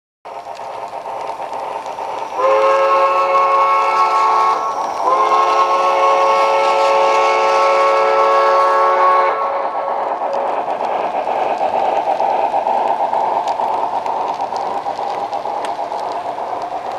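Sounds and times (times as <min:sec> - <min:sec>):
steady hiss: 0:00.3 - 0:16.9
steam whistle through small speaker: 0:02.4 - 0:09.6.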